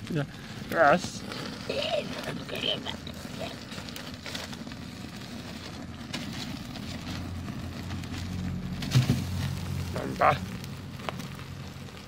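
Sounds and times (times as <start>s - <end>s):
low engine hum: 4.1s - 12.0s
loud bump: 8.8s - 9.5s.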